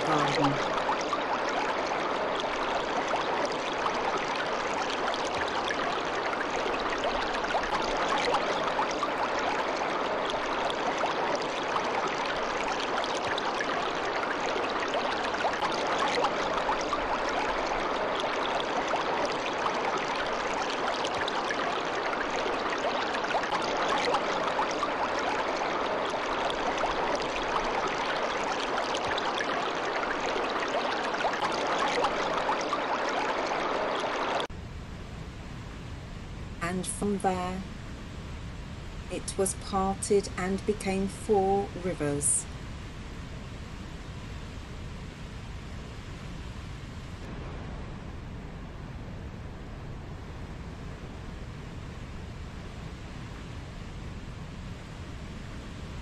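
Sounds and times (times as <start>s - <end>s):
stream water rushing: 0.0s - 34.5s.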